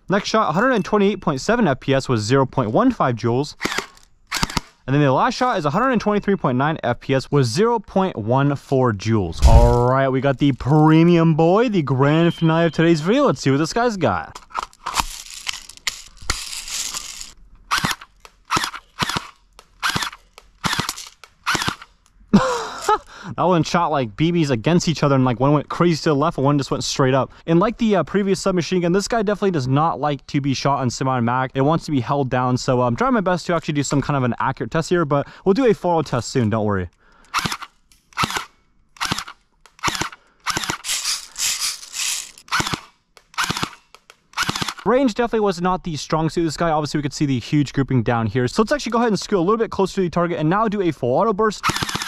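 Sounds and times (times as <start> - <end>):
airsoft gun bursts: 3.6 - 4.8, 16.3 - 21.9, 37.3 - 44.9, 51.6 - 52.0.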